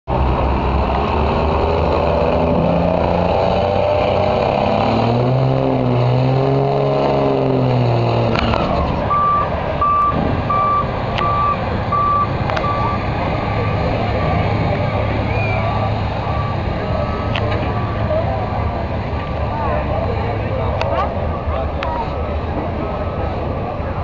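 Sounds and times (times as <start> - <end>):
diesel truck engine at full throttle: 0.1 - 24.0
reversing beeper: 9.1 - 17.4.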